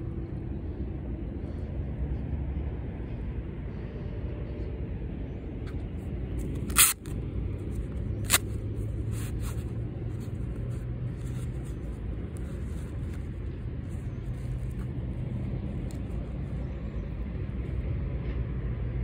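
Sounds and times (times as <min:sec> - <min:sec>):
steady low rumble: 0:00.0 - 0:19.0
hook-and-loop strap tearing: 0:06.4 - 0:13.2
glove rustling: 0:06.4 - 0:16.6.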